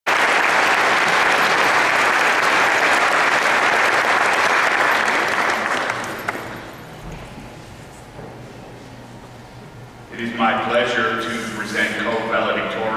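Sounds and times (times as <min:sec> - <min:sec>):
audience applauding: 0:00.1 - 0:06.8.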